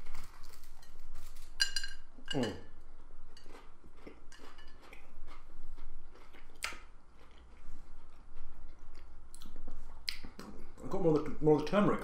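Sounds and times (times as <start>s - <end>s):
person chewing crunchy food: 3.3s - 10.6s
wet mouth clicks: 9.0s - 10.6s.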